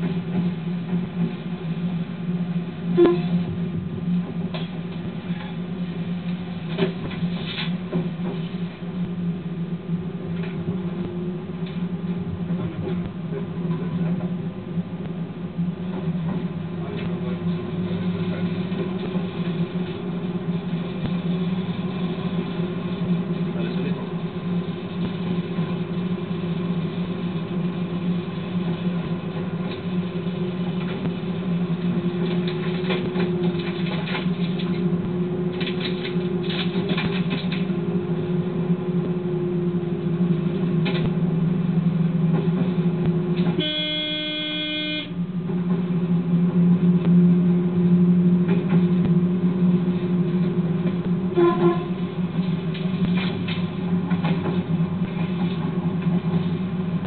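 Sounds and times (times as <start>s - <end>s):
train engine drone: 0.0s - 57.0s
train horn blast: 2.9s - 3.5s, 43.4s - 45.3s, 51.3s - 52.2s.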